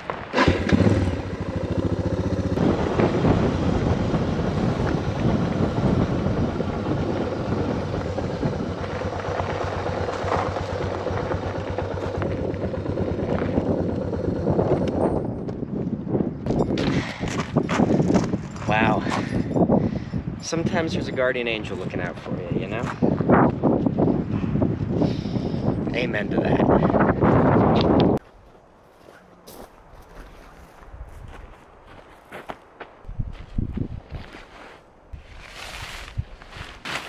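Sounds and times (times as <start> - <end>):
motorcycle engine running: 0.3 - 16.6.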